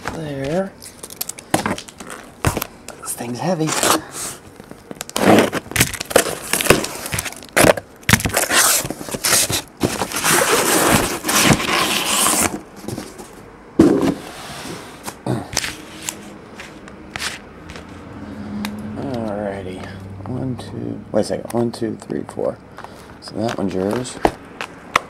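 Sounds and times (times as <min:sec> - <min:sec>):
packing tape ripping: 0:04.9 - 0:12.6
cardboard flaps scraping: 0:05.1 - 0:18.0
boxes set down knocking: 0:12.8 - 0:14.2.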